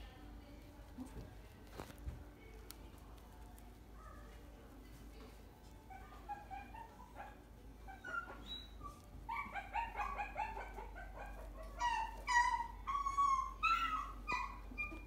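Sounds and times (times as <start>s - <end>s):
puppy whining and yipping: 5.9s - 15.0s.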